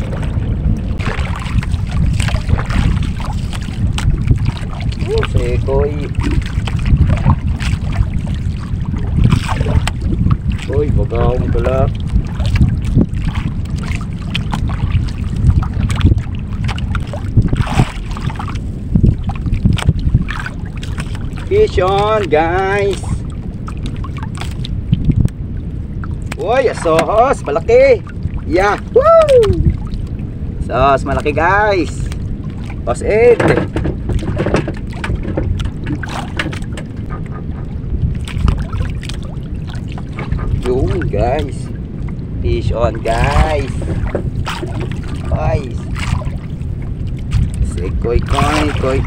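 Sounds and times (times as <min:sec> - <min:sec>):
water lapping against boat hull: 0:00.0 - 0:49.0
wind buffeting microphone: 0:00.0 - 0:49.0
knocks and clicks of handling: 0:33.4 - 0:36.9.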